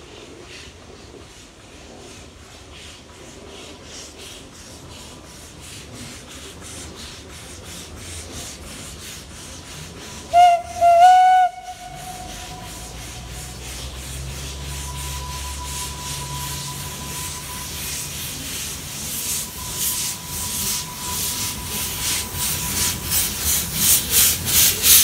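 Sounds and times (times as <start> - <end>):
steam locomotive chuffing: 0.0 - 25.0
steam whistle blasts: 10.2 - 23.7.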